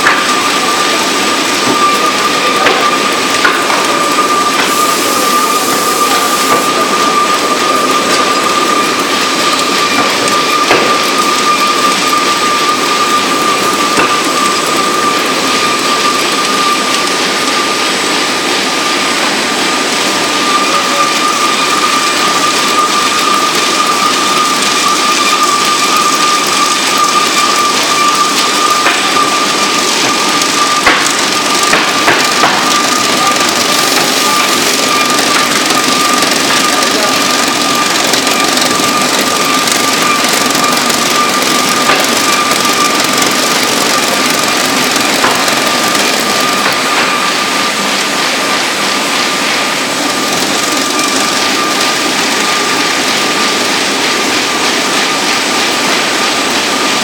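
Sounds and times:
machine running with high whine: 0:00.0 - 0:57.0.

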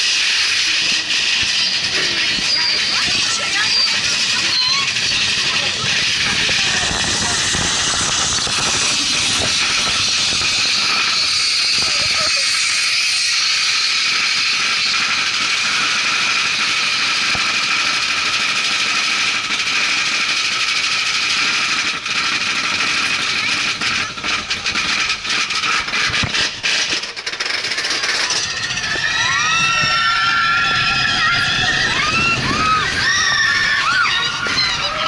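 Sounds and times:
roller coaster lift hill clatter: 0:00.0 - 0:35.0
riders screaming: 0:28.5 - 0:35.0.

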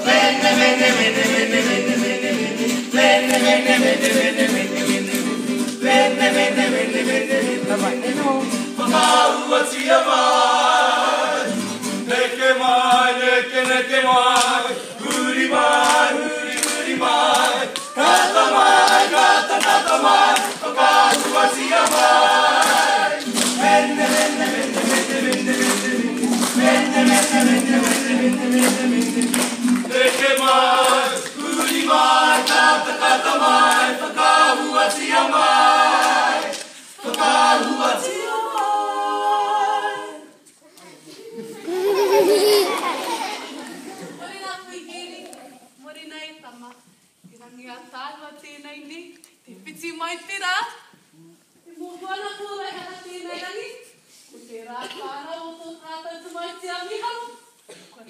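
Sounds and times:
group of voices singing: 0:00.0 - 0:40.6.

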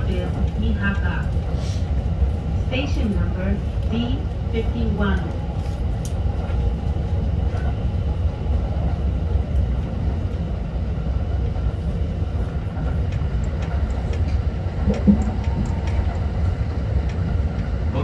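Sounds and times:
train wheels rumbling on rail: 0:00.0 - 0:18.0
faint clicks: 0:05.2 - 0:06.2.

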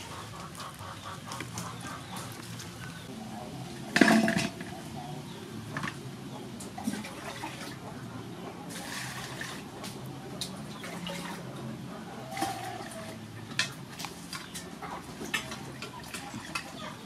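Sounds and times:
metal bowl clinking: 0:03.9 - 0:04.7.

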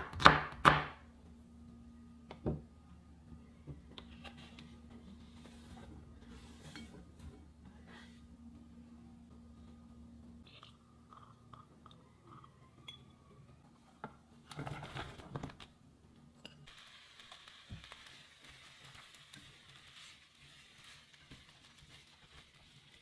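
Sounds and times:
vegetables sizzling: 0:16.7 - 0:23.0.

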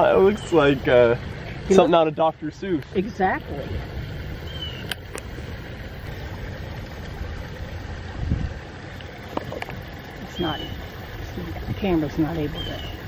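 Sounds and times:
distant road traffic rumble: 0:00.0 - 0:13.0.

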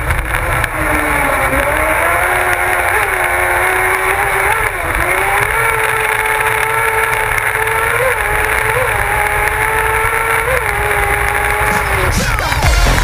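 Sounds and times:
motorcycle engine at high revs: 0:00.0 - 0:13.0
wind and road noise: 0:00.0 - 0:13.0.

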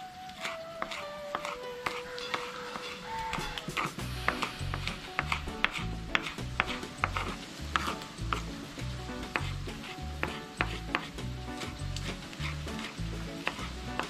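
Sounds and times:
knife chopping on wooden board: 0:00.4 - 0:08.5, 0:09.2 - 0:14.0
background music with bass: 0:03.4 - 0:14.0.

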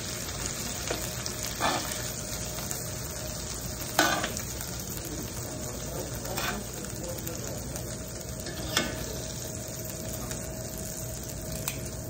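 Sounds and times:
oil sizzling in a skillet: 0:00.0 - 0:12.0
metal tongs clinking on pan: 0:03.9 - 0:04.4, 0:06.2 - 0:06.8, 0:08.4 - 0:09.1.

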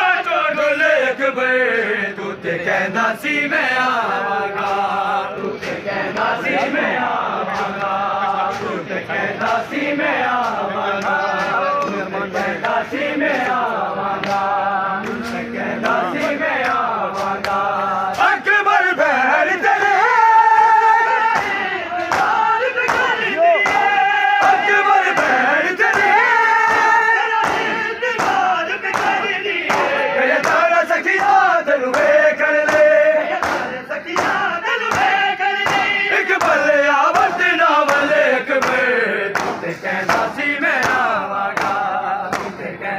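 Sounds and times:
men chanting in unison: 0:00.0 - 0:42.9
hands slapping bare chests: 0:21.3 - 0:42.6.

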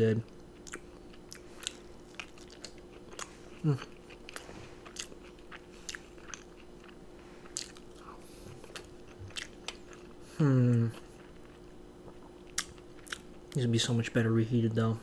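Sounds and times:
chewing and wet mouth clicks: 0:00.3 - 0:10.1, 0:11.2 - 0:13.3
person humming: 0:10.3 - 0:11.0.

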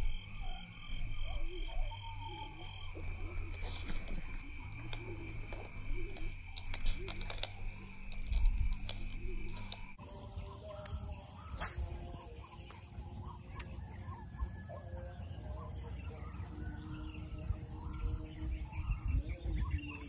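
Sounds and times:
animal calls: 0:10.0 - 0:20.0.

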